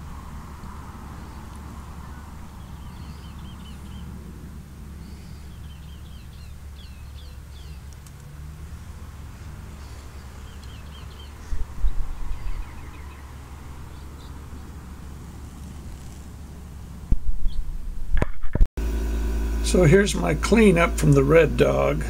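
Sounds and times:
steady low hum: 0.0s - 18.1s, 18.8s - 22.0s
small bird chirping: 1.2s - 4.2s, 5.0s - 8.3s, 9.8s - 14.8s
loud low rumble: 18.8s - 22.0s.

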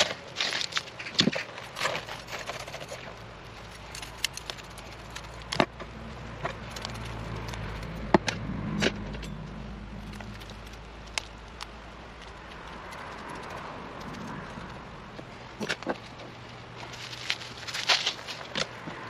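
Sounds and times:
loose soil crackling: 0.0s - 9.1s.

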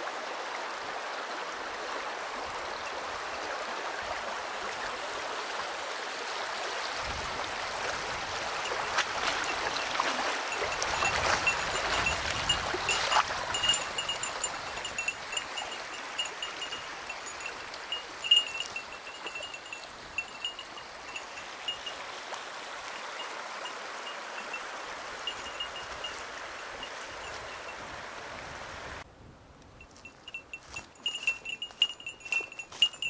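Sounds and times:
stream running over stones: 0.0s - 29.0s, 30.0s - 33.0s
small bell jingling: 8.6s - 22.0s, 25.2s - 27.7s, 29.8s - 33.0s
footsteps on stones and gravel: 8.7s - 15.2s, 29.8s - 33.0s.

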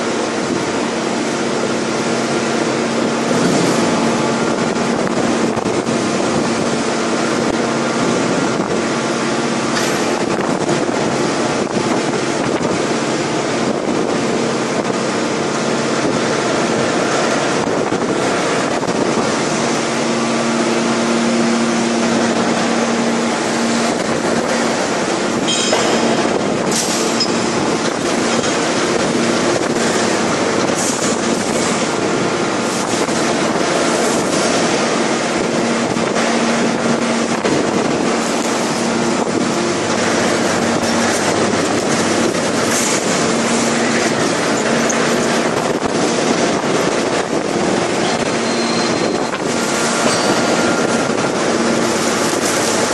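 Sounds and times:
industrial din with hum: 0.0s - 52.9s
sharp metal clanks: 25.5s - 27.5s, 50.0s - 50.8s.

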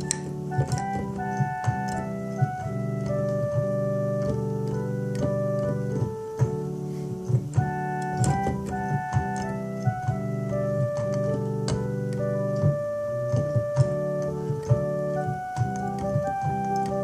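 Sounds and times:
keyboard playing organ chords: 0.0s - 17.0s
sharp clicks: 7.2s - 17.0s.

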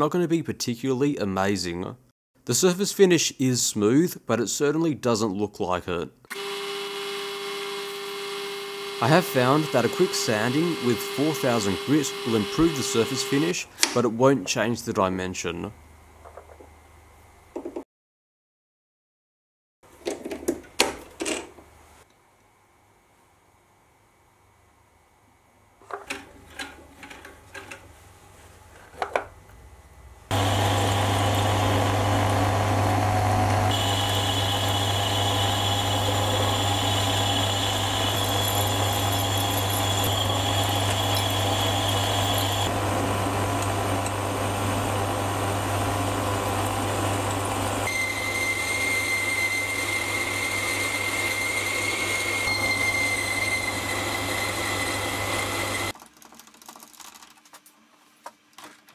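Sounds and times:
metal lathe running: 6.3s - 13.6s, 30.3s - 55.9s.

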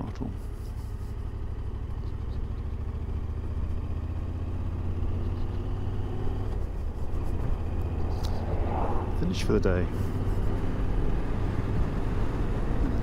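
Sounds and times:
motorcycle engine running: 0.0s - 8.4s.

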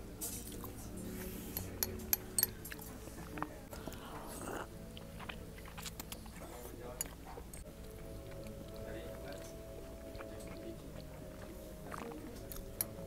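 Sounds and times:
biting into dough: 3.4s - 13.0s.

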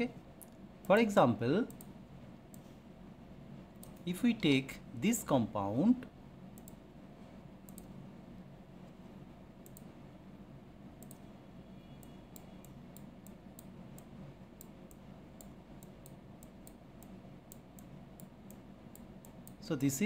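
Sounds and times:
steady low hum: 0.0s - 20.0s
computer mouse clicks: 1.6s - 2.7s, 3.8s - 4.1s, 6.6s - 6.8s, 7.6s - 8.0s, 9.6s - 9.9s, 11.0s - 11.3s, 12.0s - 19.6s.

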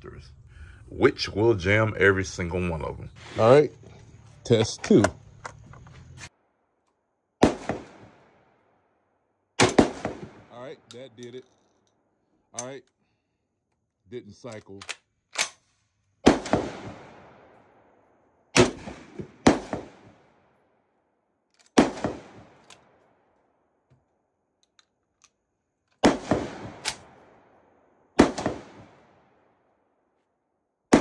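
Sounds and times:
shotgun shots echoing: 7.4s - 8.5s, 9.6s - 11.2s, 16.2s - 17.8s, 18.5s - 20.3s, 21.8s - 23.0s, 26.0s - 27.5s, 28.2s - 29.4s.

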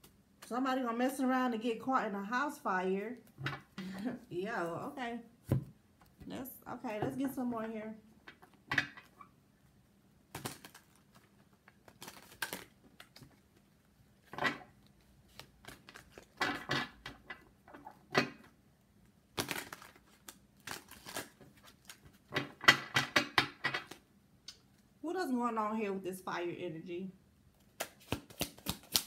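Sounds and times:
cards being shuffled: 10.3s - 13.6s, 14.9s - 16.4s, 19.4s - 22.3s, 27.6s - 29.0s.

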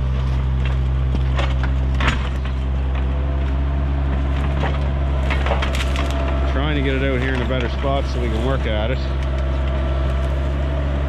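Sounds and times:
diesel engine running: 0.0s - 11.0s
sharp cracks and knocks: 0.6s - 3.6s, 4.2s - 6.4s.

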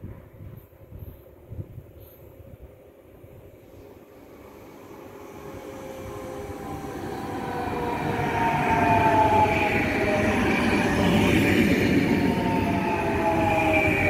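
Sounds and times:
train wheels rumbling on rails: 0.0s - 14.0s
electric train whine: 3.1s - 14.0s.

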